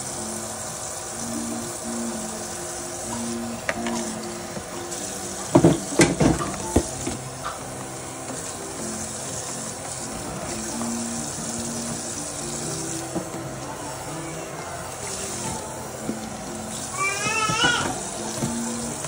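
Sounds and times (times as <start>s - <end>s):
soft background music: 0.0s - 19.0s
steady hiss: 0.0s - 19.0s
dishes clattering: 5.4s - 7.6s.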